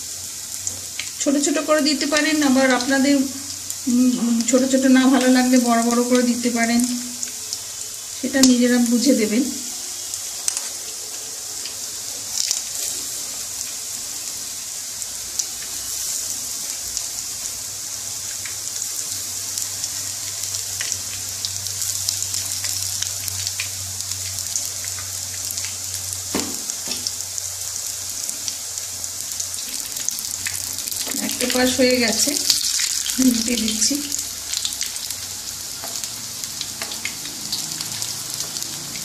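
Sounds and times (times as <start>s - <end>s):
fritters deep-frying in oil: 0.0s - 39.0s
oil crackling and popping: 11.6s - 13.8s, 18.2s - 39.0s.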